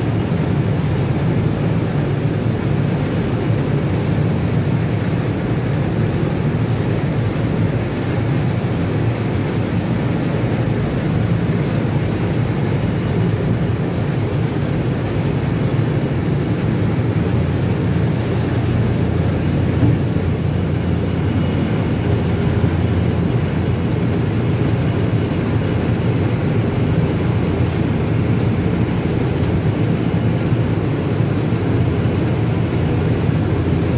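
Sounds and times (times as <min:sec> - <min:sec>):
ship low rumble: 0:00.0 - 0:33.9.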